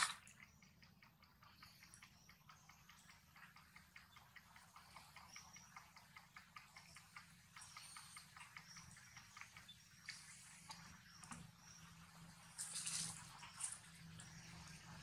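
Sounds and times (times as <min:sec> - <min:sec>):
baby monkey suckling clicks: 0:00.0 - 0:11.5.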